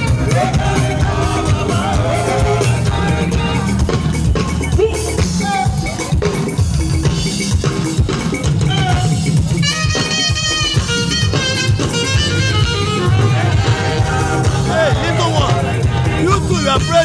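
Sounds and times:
drum kit beat: 0.0 - 17.0
live gospel band music: 0.0 - 17.0
saxophone runs: 9.6 - 15.5.

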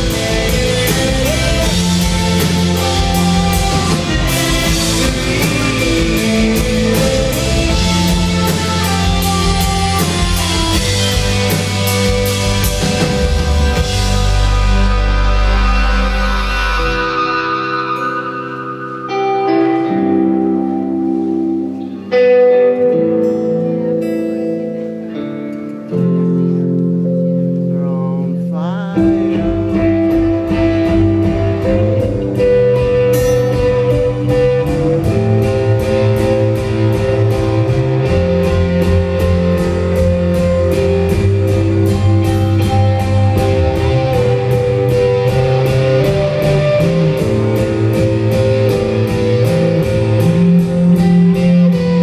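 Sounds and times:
drums steady beat: 0.0 - 16.7, 27.8 - 52.0
electric guitar chords: 0.0 - 52.0
live rock band: 0.0 - 52.0.

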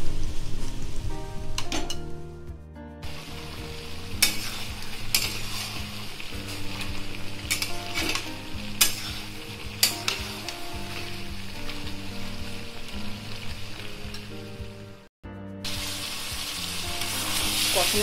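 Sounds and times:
chicken sizzling in a pan: 3.0 - 15.0, 15.6 - 18.0
steel spatula scraping pan: 4.1 - 10.5.

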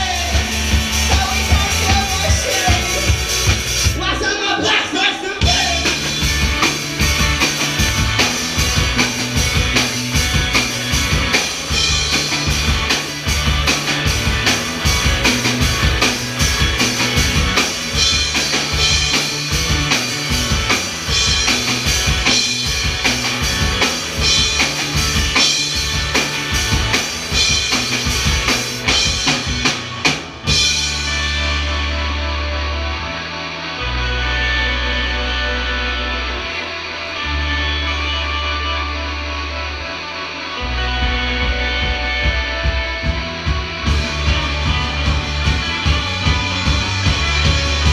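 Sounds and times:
drum kit beat: 0.0 - 4.2, 5.4 - 31.9, 41.0 - 47.9
bass guitar: 0.0 - 47.9
electric guitars: 0.0 - 47.9.

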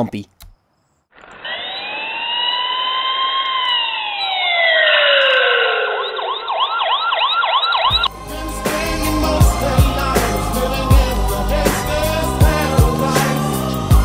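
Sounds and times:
police siren wailing and yelping: 1.2 - 8.1
music: 7.9 - 14.0.

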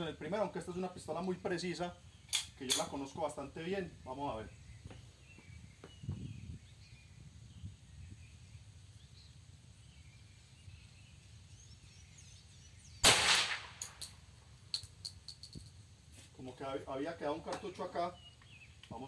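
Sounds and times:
pistol shot with echo: 13.0 - 14.1.

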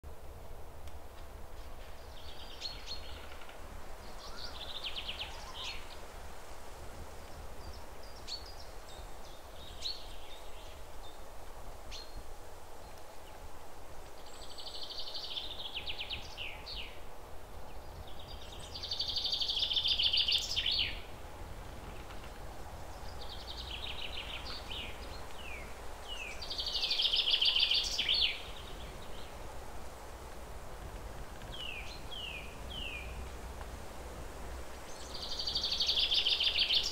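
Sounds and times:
birds chirping and trilling: 17.7 - 21.1, 22.8 - 29.4, 34.9 - 36.9.

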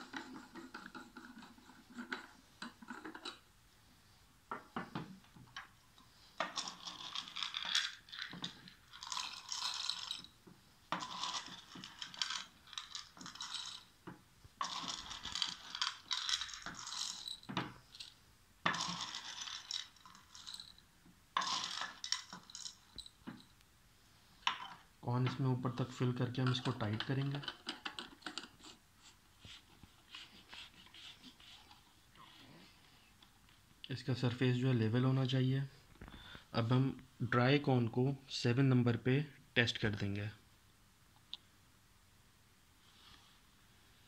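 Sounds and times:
corn kernels rattling into metal cell: 6.4 - 10.3, 10.9 - 13.8, 14.6 - 17.5, 21.4 - 22.8.

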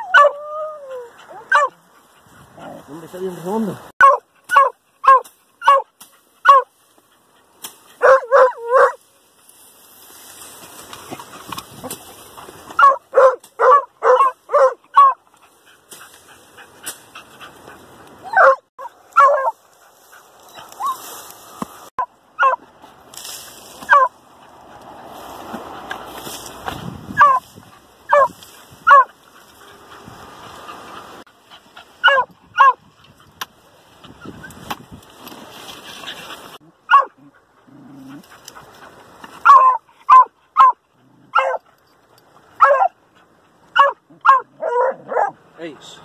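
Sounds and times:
hounds barking: 0.0 - 2.0, 4.0 - 6.7, 8.0 - 9.0, 12.8 - 15.2, 18.2 - 21.0, 22.0 - 22.6, 23.9 - 24.2, 27.2 - 27.4, 28.1 - 29.8, 32.0 - 32.8, 36.8 - 38.3, 39.4 - 41.6, 42.5 - 45.5.

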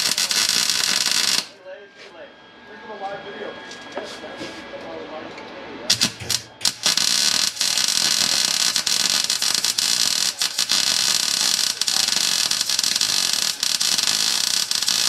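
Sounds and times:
welding arc: 0.0 - 1.6, 5.9 - 15.0.

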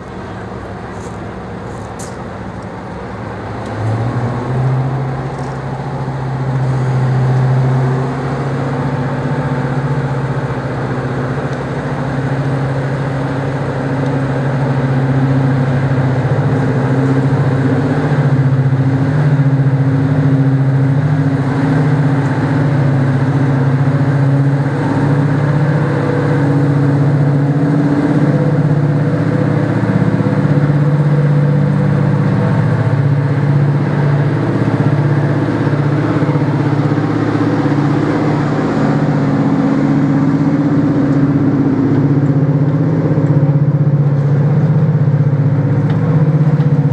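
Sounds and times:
diesel locomotive engines droning: 0.0 - 46.9.

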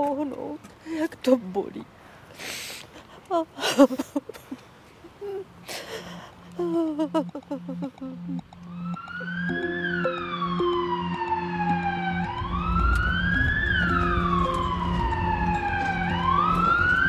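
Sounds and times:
ambulance siren wailing: 7.0 - 17.0
low rumble: 11.6 - 17.0.

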